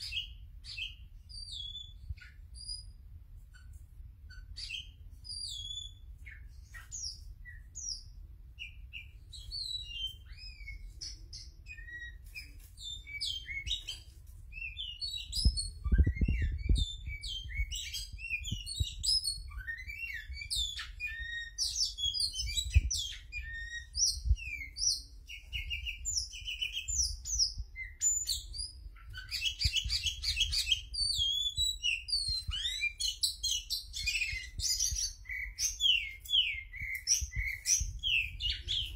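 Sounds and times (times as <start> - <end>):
bird singing whistled song: 0.0 - 3.7, 4.3 - 38.9.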